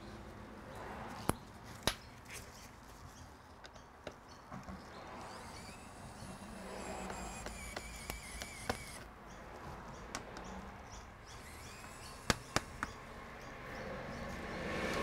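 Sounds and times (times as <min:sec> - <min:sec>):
sharp clicks: 0:03.6 - 0:13.0.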